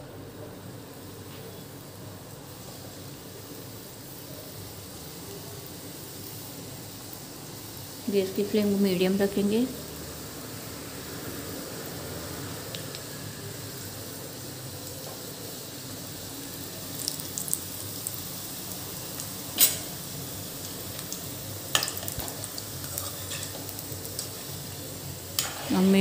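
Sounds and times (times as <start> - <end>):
oil sizzling and bubbling: 0.0 - 26.0
spoon turning food in oil: 17.0 - 18.2, 19.0 - 26.0.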